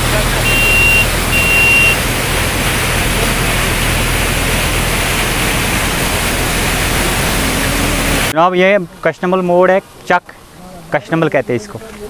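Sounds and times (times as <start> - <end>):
floodwater rushing: 0.0 - 12.0
high steady tone: 0.4 - 4.0.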